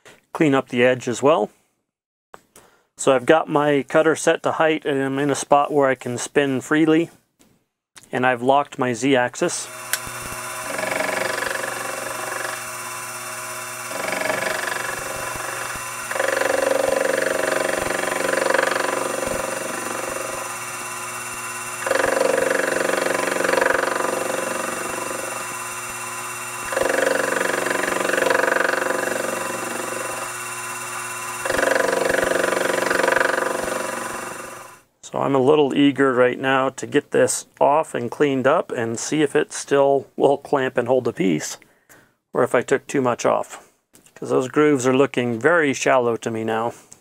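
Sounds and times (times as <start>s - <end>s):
end mill cutting metal: 9.5s - 34.8s
milling machine spindle running: 9.6s - 34.8s.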